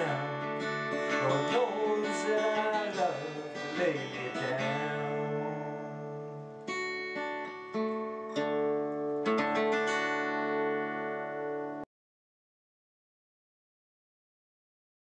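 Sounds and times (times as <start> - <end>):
guitar chords strummed: 0.0 - 11.9.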